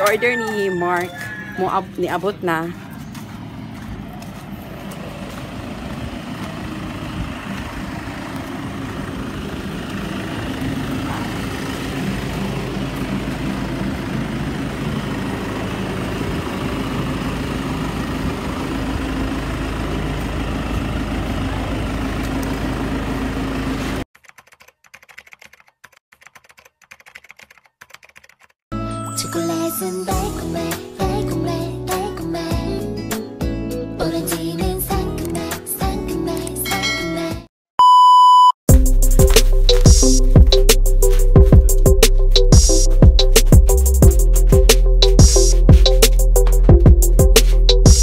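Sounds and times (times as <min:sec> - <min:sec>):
motor rumble with low hum: 0:05.2 - 0:23.9
keyboard typing clicks: 0:24.2 - 0:28.5.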